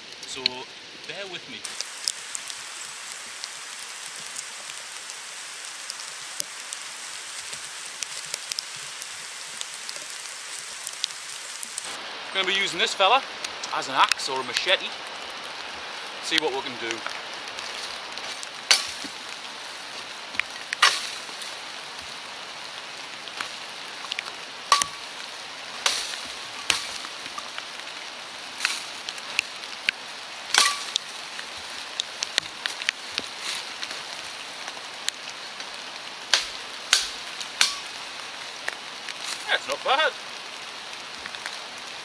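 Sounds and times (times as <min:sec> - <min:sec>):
leaves rustling: 0:00.0 - 0:42.0
rain hiss: 0:00.0 - 0:42.0
shovel blade chopping branches: 0:18.7 - 0:19.2, 0:20.8 - 0:21.2, 0:24.7 - 0:25.0, 0:25.8 - 0:27.0, 0:30.5 - 0:31.1, 0:36.3 - 0:37.9.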